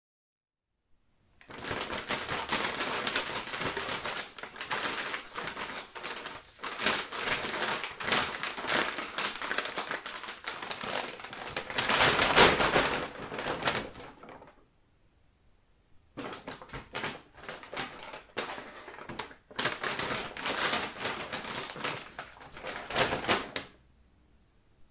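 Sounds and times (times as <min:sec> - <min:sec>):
stiff paper crinkling: 0:01.4 - 0:14.6, 0:16.2 - 0:23.7.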